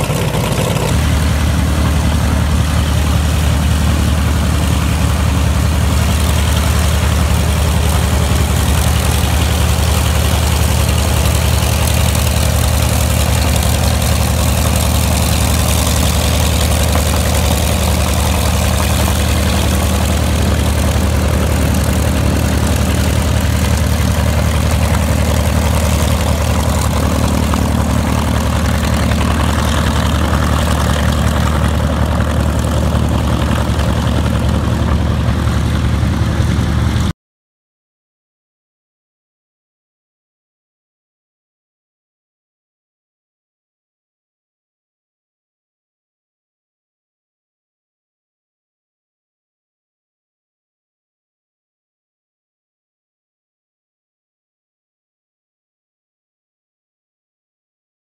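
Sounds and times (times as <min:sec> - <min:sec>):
radial aircraft engine running: 0:00.0 - 0:37.1.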